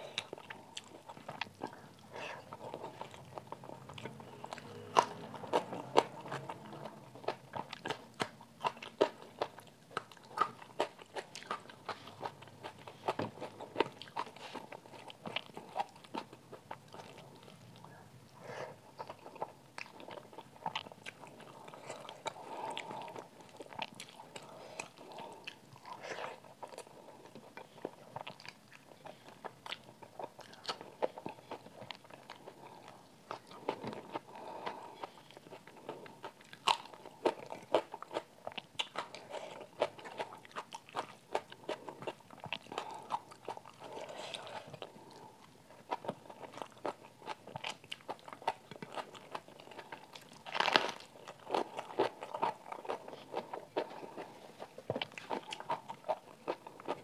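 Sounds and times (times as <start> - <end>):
chewing food: 0.0 - 57.0
crunching raw onion: 46.0 - 54.3.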